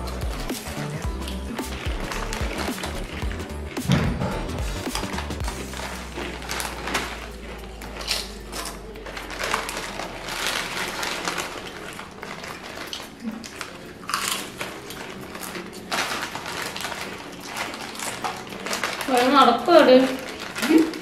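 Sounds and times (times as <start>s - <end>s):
foil packet crinkling: 0.0s - 21.0s
potato chips crunching: 0.0s - 21.0s.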